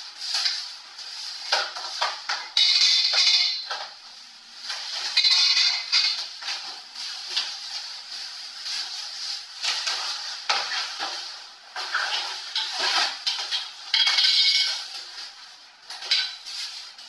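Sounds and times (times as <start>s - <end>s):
knocks and clinks of parts: 2.2s - 3.9s, 5.0s - 6.3s, 12.6s - 14.9s.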